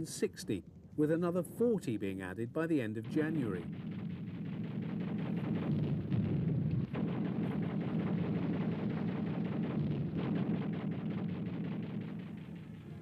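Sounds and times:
gunfire: 2.8 - 13.0
low rumble: 2.8 - 13.0.

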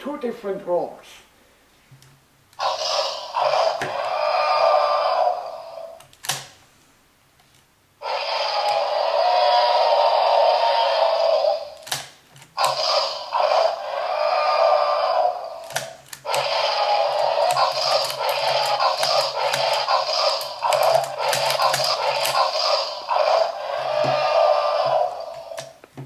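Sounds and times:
toy dinosaur roars through speaker: 2.6 - 6.0, 8.0 - 11.9, 12.6 - 25.8.

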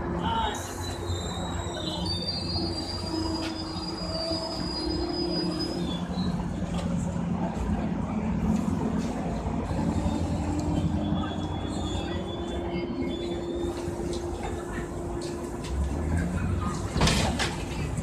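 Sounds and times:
train coaches rolling: 0.0 - 18.0
high-pitched brake squeal: 0.4 - 6.6, 9.7 - 14.6.

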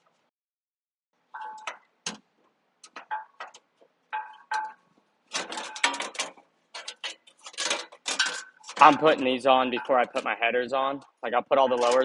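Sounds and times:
metal panel clicking and clinking: 2.8 - 10.3, 11.7 - 12.0.

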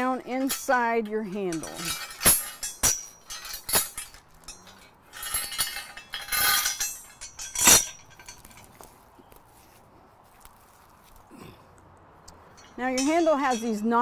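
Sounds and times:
metal chain clinking and rattling: 0.0 - 9.0, 12.5 - 14.0.

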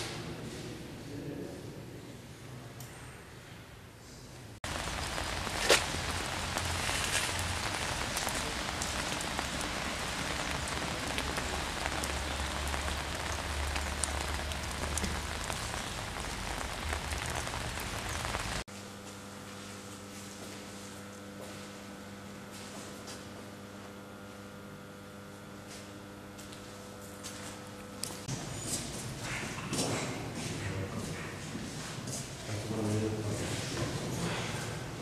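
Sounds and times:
rain on wet ground: 4.6 - 18.7.

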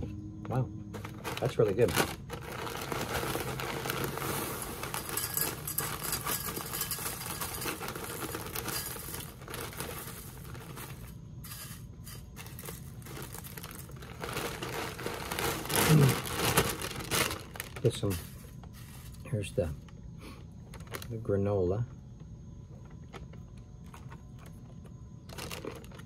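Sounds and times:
plastic bag crinkling: 0.9 - 19.9, 20.6 - 21.3, 22.9 - 26.0
cereal pouring into bowl: 1.2 - 16.8, 17.4 - 19.2.

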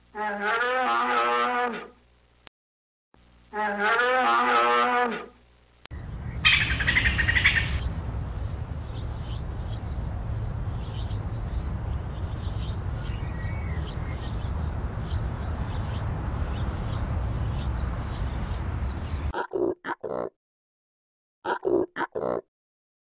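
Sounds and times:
low rumble: 6.0 - 19.3.

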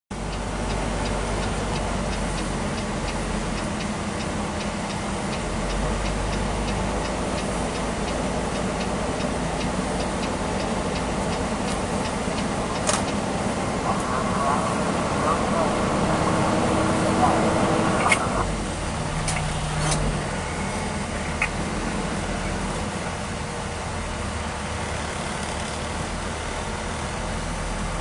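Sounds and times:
low engine rumble: 0.1 - 28.0
truck cab running noise: 0.1 - 28.0
light even ticking: 0.2 - 18.4.

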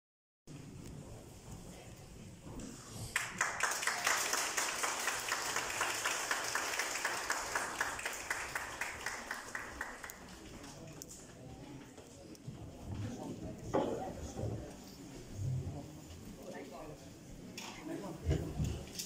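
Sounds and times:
audience applauding: 3.1 - 10.8.

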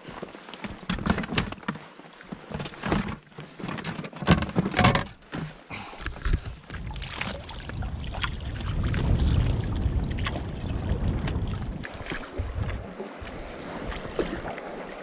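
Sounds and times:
water lapping: 0.0 - 3.7, 5.5 - 15.0
canoe hull knocking and scraping: 0.2 - 12.8
wind on microphone: 6.4 - 14.5.

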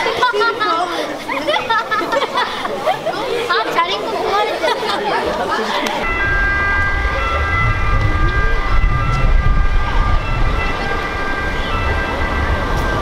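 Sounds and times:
rumble of traffic: 5.8 - 13.0
high-pitched whining tones: 6.0 - 13.0.

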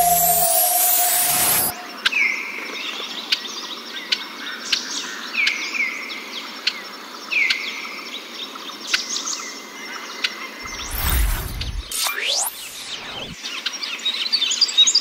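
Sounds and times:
whistled bird phrase: 0.0 - 2.3.

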